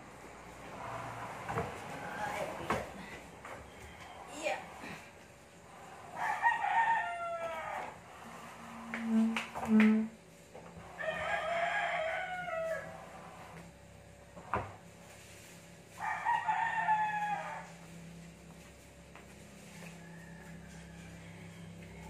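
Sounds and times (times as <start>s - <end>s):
steady low hum: 0.0s - 22.0s
rooster crowing: 3.4s - 5.0s, 5.6s - 9.0s, 10.9s - 13.6s, 15.9s - 18.2s, 19.6s - 22.0s.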